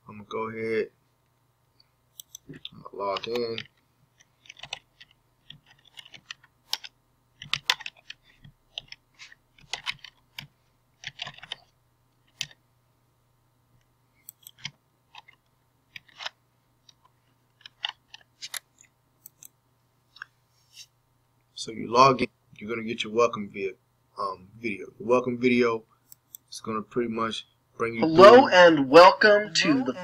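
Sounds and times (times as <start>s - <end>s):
typing on computer keyboard: 2.2s - 9.0s, 9.6s - 11.7s, 12.3s - 12.6s, 17.6s - 18.6s.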